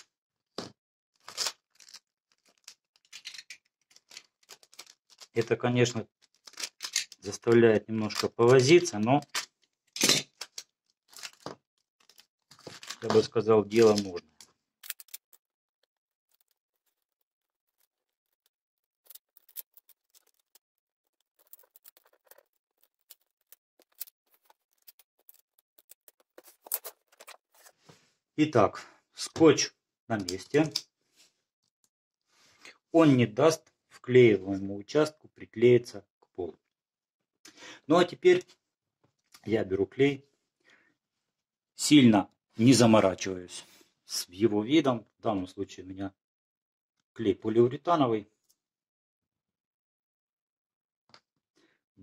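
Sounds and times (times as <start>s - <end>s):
adhesive tape crackling and ripping: 1.2s - 2.8s
faint clicks crackles and rustles: 1.5s - 5.5s, 13.7s - 27.9s.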